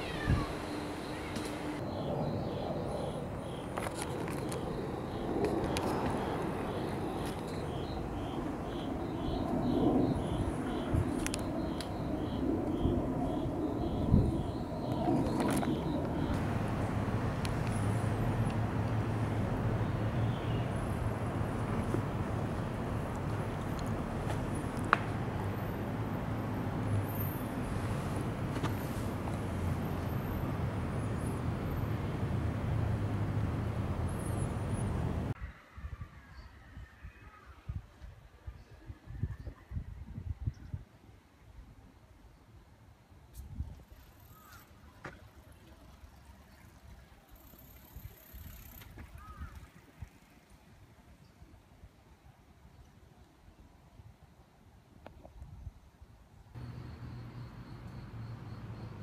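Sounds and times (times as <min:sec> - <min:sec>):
distant traffic rumble: 0:00.0 - 0:35.4, 0:56.6 - 0:59.0
low rush of street noise: 0:00.0 - 0:59.0
faint high chirp: 0:56.6 - 0:59.0.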